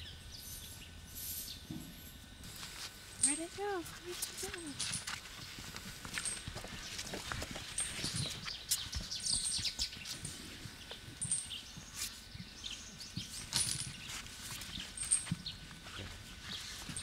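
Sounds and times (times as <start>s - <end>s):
small birds chirping: 7.7s - 13.4s.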